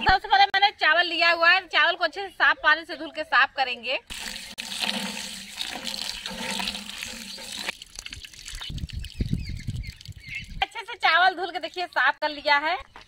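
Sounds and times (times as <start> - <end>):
water sloshing: 4.1 - 10.4
water splashing into steel bowl: 4.1 - 10.6.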